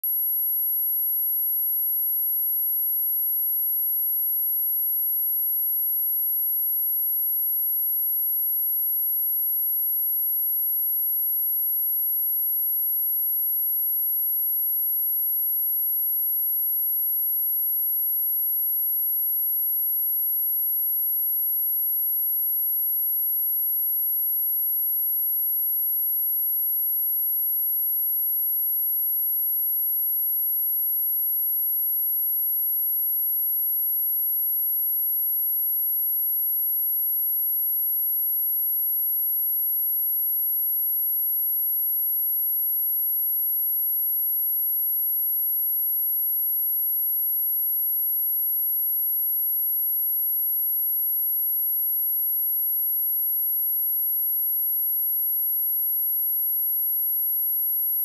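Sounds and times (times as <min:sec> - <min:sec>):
high-pitched sine test tone: 0:00.0 - 0:04.2.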